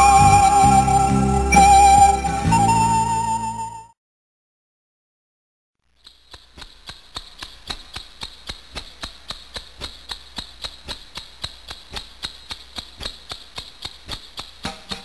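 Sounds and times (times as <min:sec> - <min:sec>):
rhythmic sharp clicks: 0:06.0 - 0:15.0.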